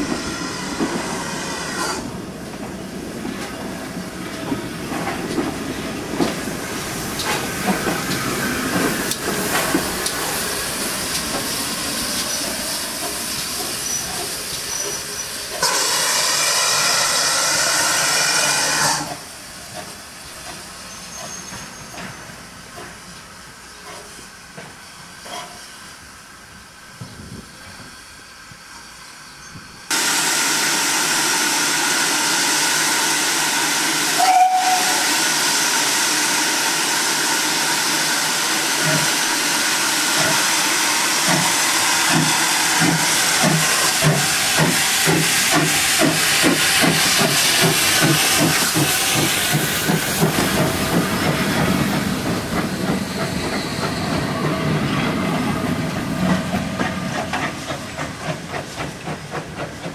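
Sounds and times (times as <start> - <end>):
steam hissing: 0.0 - 3.2, 3.8 - 59.9
steam whistle toot: 33.8 - 35.9
steam engine exhaust beats: 41.1 - 59.9.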